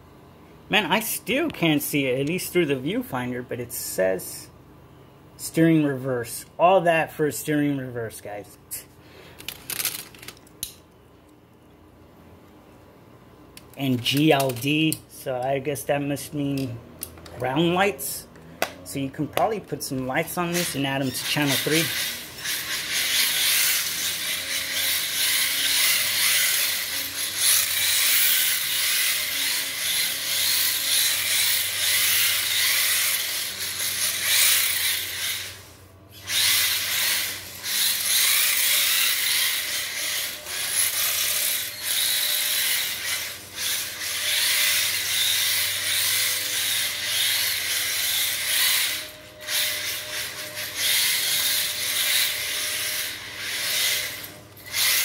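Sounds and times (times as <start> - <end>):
electric motor whirring: 20.4 - 55.0.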